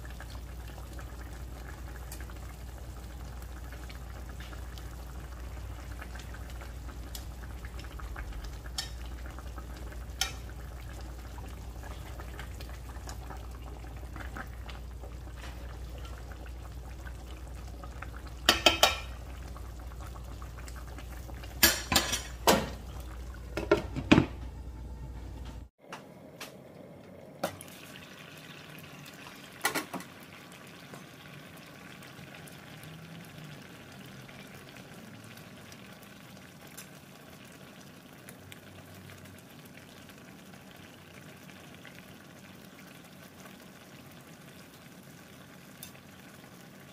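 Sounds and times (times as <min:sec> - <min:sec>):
sauce bubbling in a pan: 0:00.0 - 0:24.2, 0:27.4 - 0:46.9
low hum: 0:22.7 - 0:27.4.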